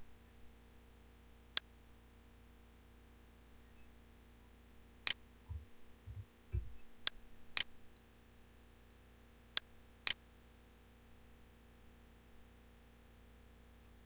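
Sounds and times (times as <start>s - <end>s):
faint steady hum: 0.0s - 14.0s
low thuds: 5.5s - 7.0s.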